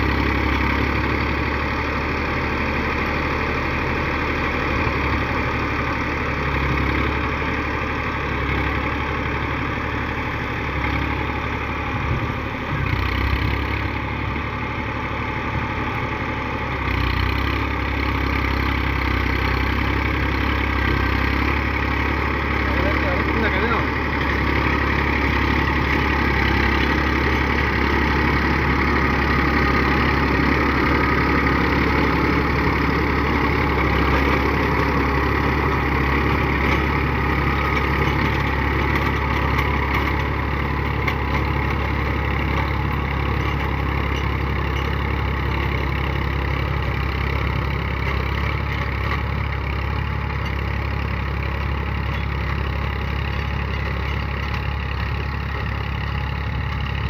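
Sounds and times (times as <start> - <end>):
diesel tractor engine under load: 0.0 - 57.0
rotary tiller through grass and soil: 0.0 - 57.0.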